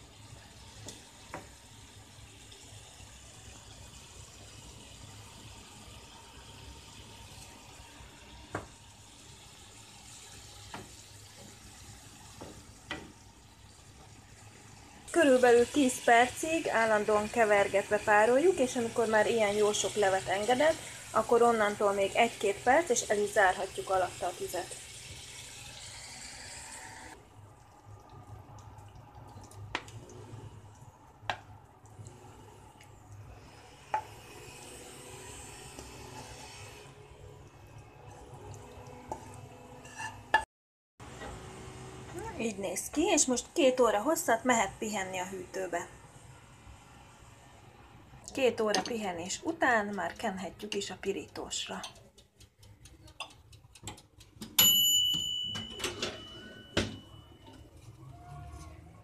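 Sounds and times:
vegetables sizzling in oil: 0.0s - 27.2s, 32.1s - 38.4s
wooden spoon stirring in a pan: 7.4s - 15.7s.

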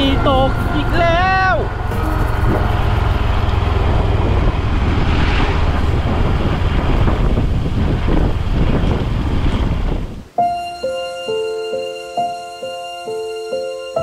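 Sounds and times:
motorcycle engine: 0.0s - 10.2s
wind rushing over microphone: 0.0s - 10.4s.

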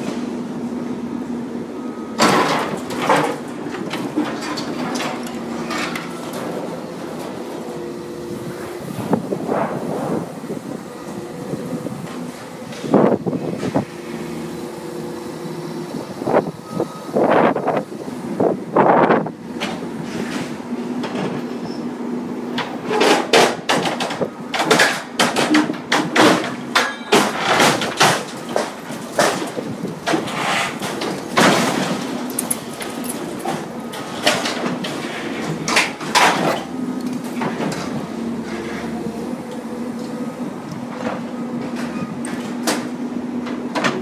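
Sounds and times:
excavator engine running: 0.0s - 44.0s
metal debris crashing: 24.6s - 36.7s.

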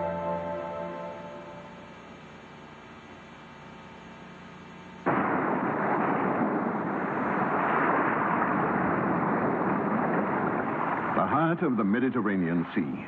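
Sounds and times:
soft music: 0.0s - 2.2s.

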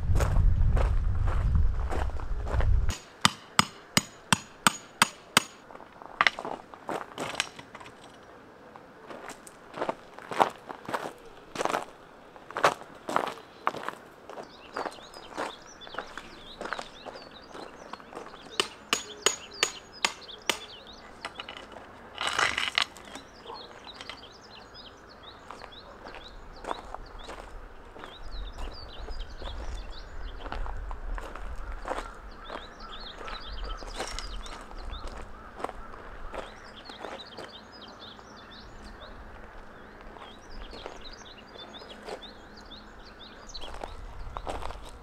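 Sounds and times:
low rumble: 0.0s - 2.9s
birds chirping: 2.5s - 45.0s
hammer striking tent peg: 2.9s - 5.6s, 18.6s - 20.8s
sharp knocks: 2.9s - 5.6s.

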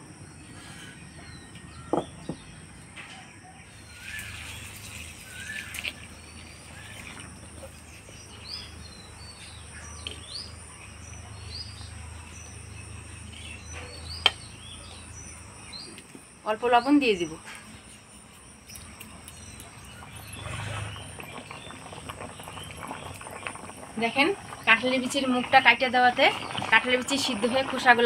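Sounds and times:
small birds chirping: 0.2s - 28.0s.

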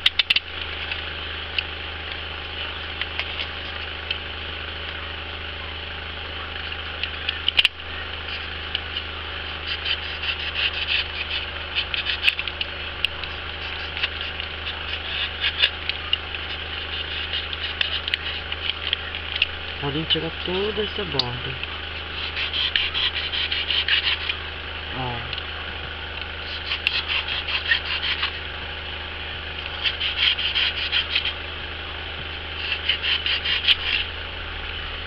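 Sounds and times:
low electrical hum: 0.0s - 35.0s
knife cutting foam: 9.6s - 12.6s, 16.5s - 18.8s, 22.1s - 24.4s, 26.4s - 28.4s, 29.8s - 31.4s, 32.6s - 34.1s.

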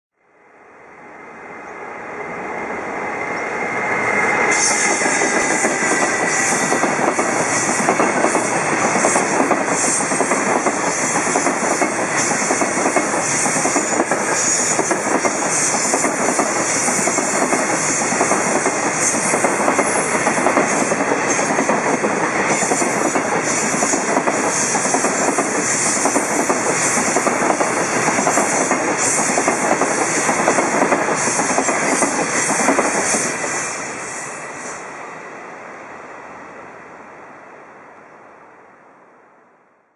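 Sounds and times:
freight train wheels clattering: 4.6s - 33.7s.

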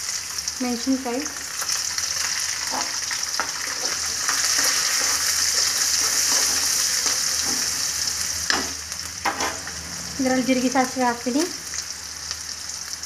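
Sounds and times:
food sizzling in hot oil: 0.0s - 13.0s
metal spoon scraping pan: 2.7s - 7.9s, 8.5s - 9.7s.

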